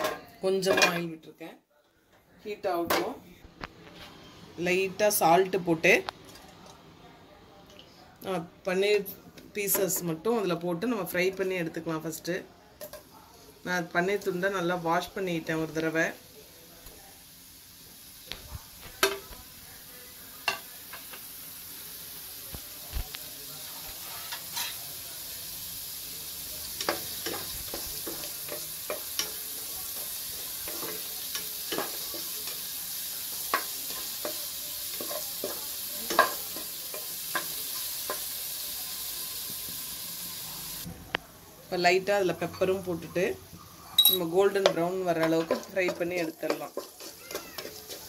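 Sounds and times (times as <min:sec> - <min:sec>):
cheese sizzling in hot oil: 0:12.9 - 0:40.9, 0:42.7 - 0:48.0
wooden spatula scraping a pan: 0:23.9 - 0:24.9, 0:44.7 - 0:48.0.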